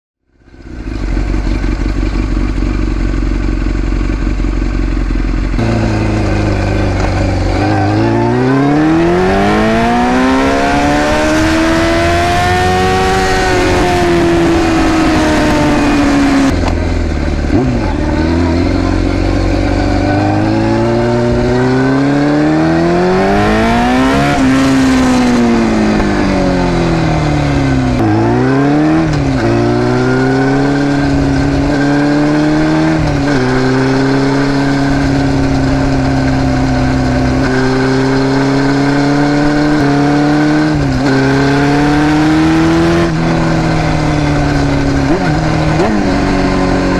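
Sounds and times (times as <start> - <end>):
motorcycle exhaust revving: 0.3 - 46.9.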